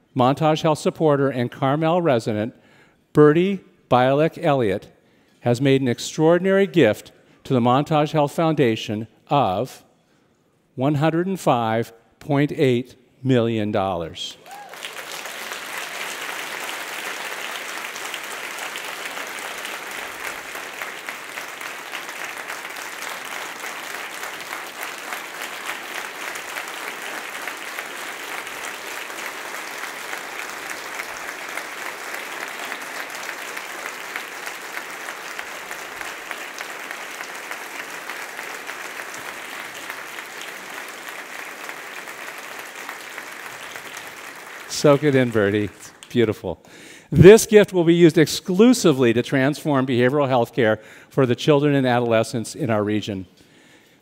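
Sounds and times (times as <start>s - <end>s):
audience applauding: 14.4s - 46.1s.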